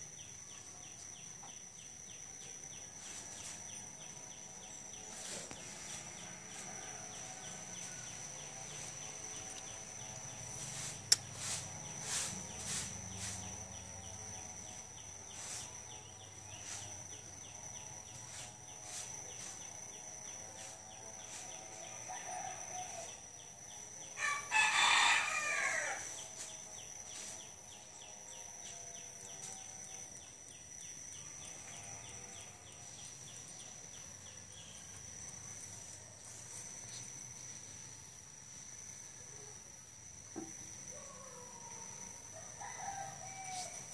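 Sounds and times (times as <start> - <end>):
rooster crowing: 6.2 - 8.9, 21.8 - 23.2, 24.2 - 26.2, 41.1 - 43.9.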